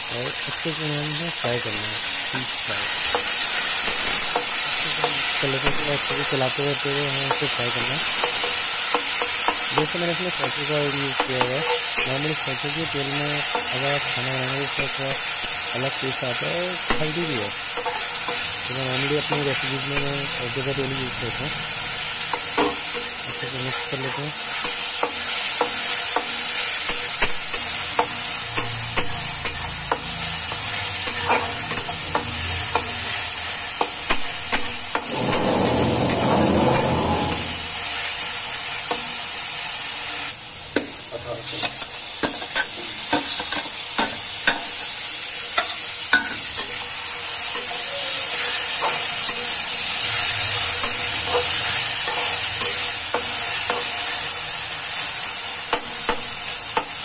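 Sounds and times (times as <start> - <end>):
food sizzling in oil: 0.0 - 57.0
spatula scraping a pan: 2.8 - 33.2, 33.8 - 38.2, 45.6 - 54.4.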